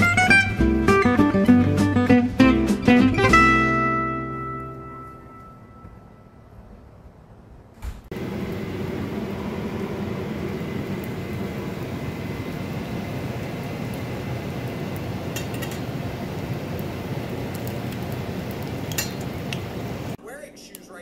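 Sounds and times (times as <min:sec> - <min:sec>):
food sizzling in oil: 0:08.1 - 0:20.2
sharp oil crackles: 0:08.1 - 0:21.0.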